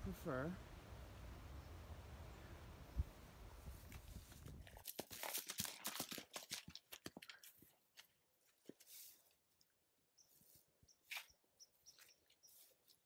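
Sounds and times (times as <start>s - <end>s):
hooves crunching through dry grass: 3.6s - 9.6s, 10.3s - 13.0s
bird chirps: 10.2s - 12.8s.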